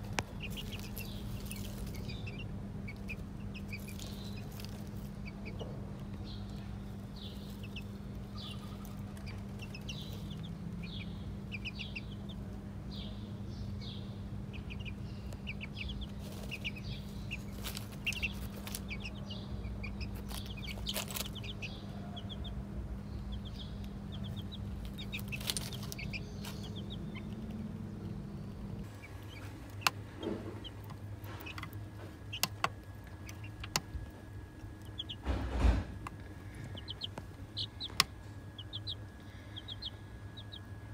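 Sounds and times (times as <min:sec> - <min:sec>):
chicks peeping: 0:00.0 - 0:40.9
low hum: 0:00.0 - 0:40.9.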